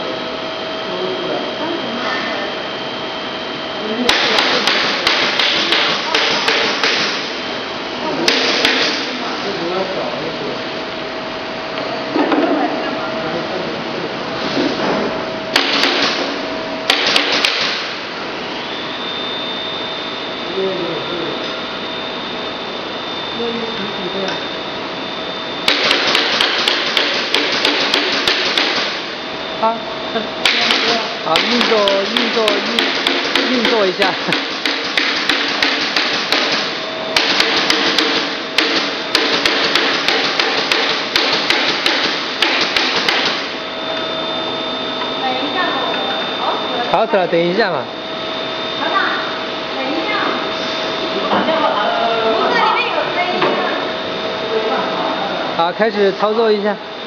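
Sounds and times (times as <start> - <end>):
sharp knocks: 4.1 - 7.2, 15.5 - 16.2, 25.7 - 29.0, 30.4 - 43.4
faint high whine: 17.8 - 26.9, 43.4 - 57.0.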